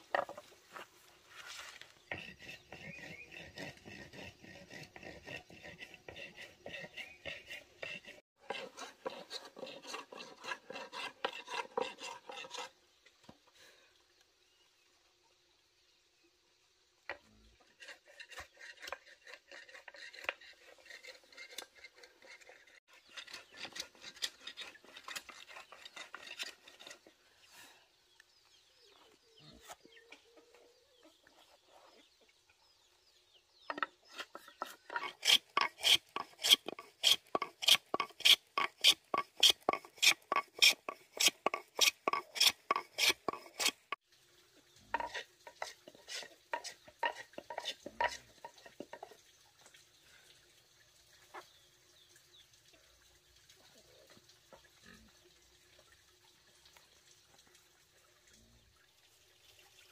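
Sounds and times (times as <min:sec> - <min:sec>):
hand tool scraping wood: 0:00.0 - 0:12.8, 0:17.6 - 0:27.3, 0:33.7 - 0:44.0, 0:45.0 - 0:49.1.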